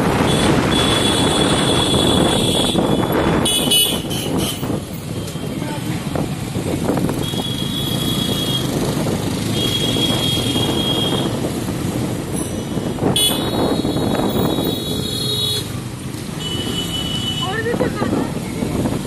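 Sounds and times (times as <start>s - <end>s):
motorbike engine and road noise: 0.0s - 19.0s
vehicle horns honking: 0.2s - 4.8s, 7.2s - 8.8s, 9.5s - 11.4s, 12.6s - 15.7s, 16.4s - 17.6s.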